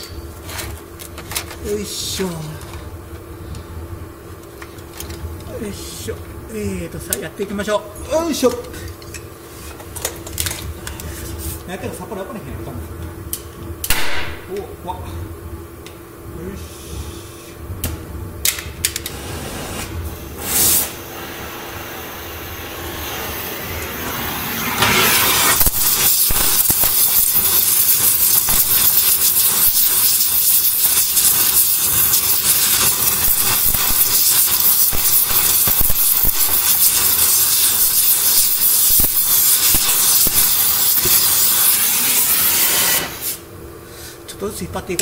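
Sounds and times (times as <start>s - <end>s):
gas torch flame hissing: 16.5s - 17.7s, 18.4s - 43.5s.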